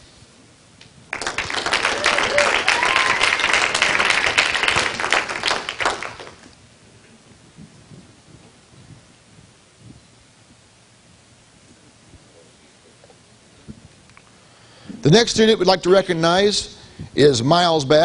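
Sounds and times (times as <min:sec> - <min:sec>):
crowd clapping: 0:01.1 - 0:06.5.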